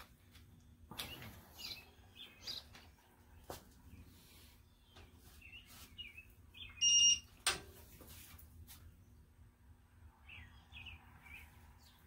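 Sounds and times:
torque wrench high beep: 0:06.8 - 0:07.3.

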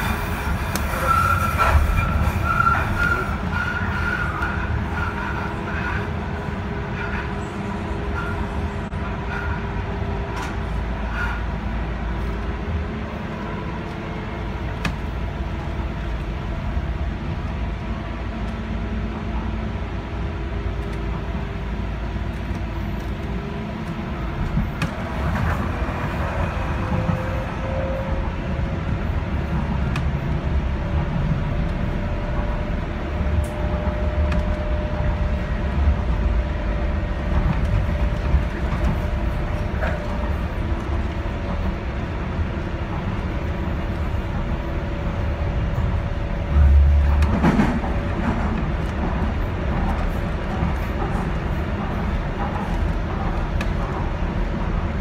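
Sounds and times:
train low rumble: 0:00.0 - 0:55.0.

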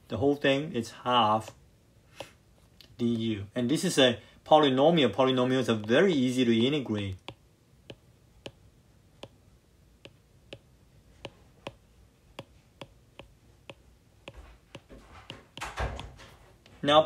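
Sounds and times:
stylus tapping on tablet screen: 0:02.2 - 0:02.4, 0:07.2 - 0:09.4, 0:10.0 - 0:15.8.

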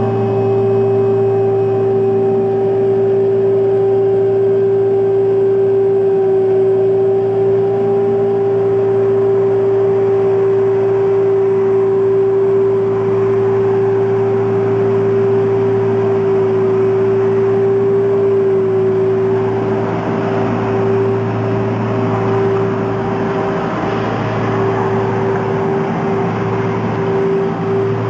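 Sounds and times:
street sweeper engine droning: 0:00.0 - 0:28.0.

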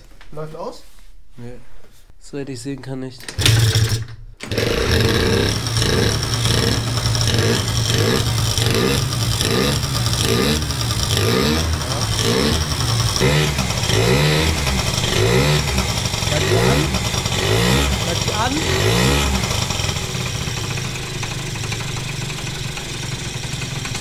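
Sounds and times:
scooter engine revving: 0:03.4 - 0:24.0.

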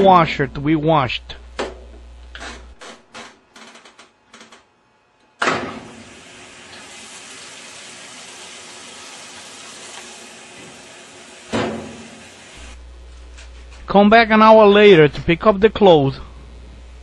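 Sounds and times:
water rushing into washer tub: 0:05.6 - 0:12.8.

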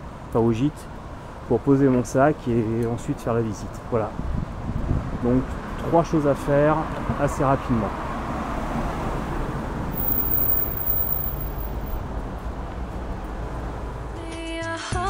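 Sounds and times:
cars going by: 0:05.5 - 0:14.2
music: 0:14.2 - 0:15.0.

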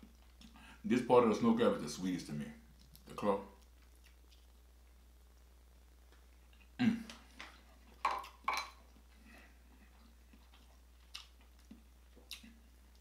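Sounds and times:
shells and dishes knocking on plate: 0:08.0 - 0:08.8.

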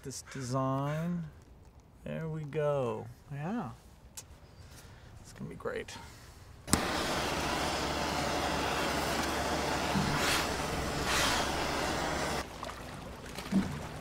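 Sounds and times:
welding arc hissing: 0:06.7 - 0:12.4.

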